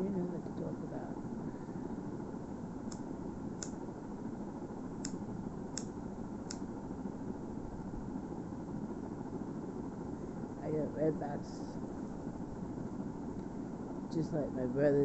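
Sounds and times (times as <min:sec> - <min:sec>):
steady background noise: 0:00.0 - 0:15.0
lighter clicking: 0:02.9 - 0:03.8, 0:05.0 - 0:06.7.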